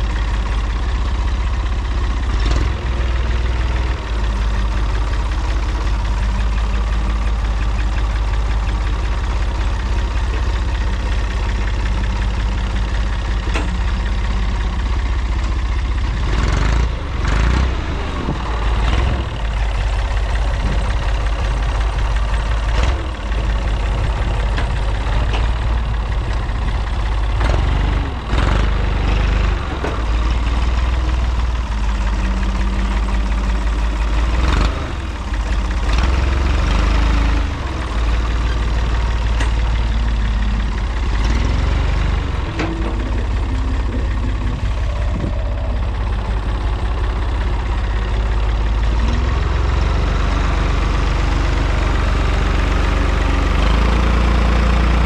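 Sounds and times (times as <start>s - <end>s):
diesel tractor engine running: 0.0s - 55.0s.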